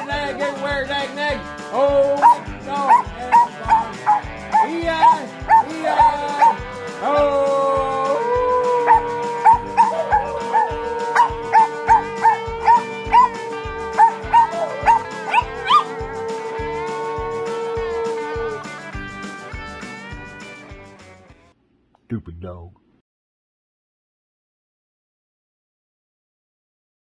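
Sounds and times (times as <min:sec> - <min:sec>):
music: 0:00.0 - 0:21.6
dog howling: 0:02.0 - 0:18.7
short high calls: 0:08.0 - 0:18.8.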